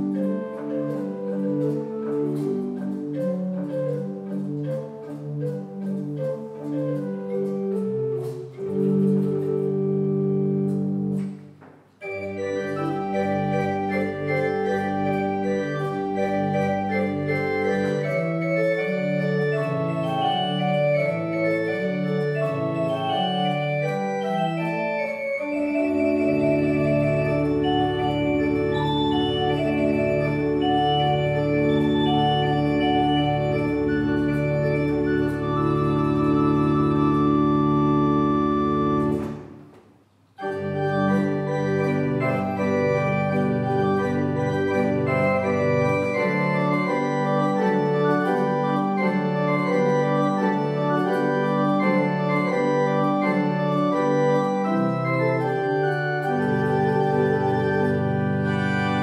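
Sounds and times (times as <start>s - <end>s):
pipe organ playing: 0.0s - 39.8s, 40.4s - 59.0s.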